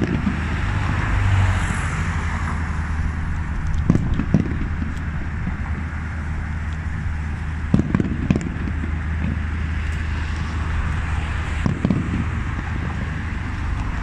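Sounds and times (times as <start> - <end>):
fireworks bangs: 0.0 - 1.5, 3.4 - 6.3, 6.9 - 9.8, 10.4 - 14.0
low rumble: 0.0 - 14.0.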